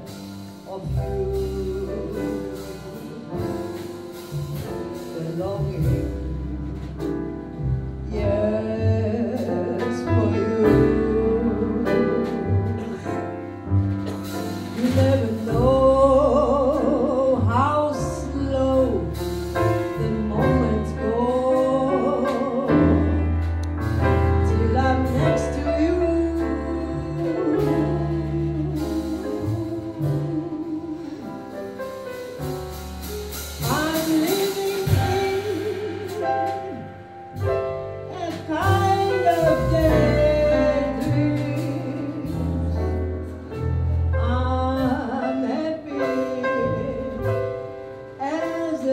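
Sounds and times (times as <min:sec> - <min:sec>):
double bass: 0:00.0 - 0:48.9
piano: 0:00.0 - 0:48.9
woman singing jazz melody: 0:00.0 - 0:48.9.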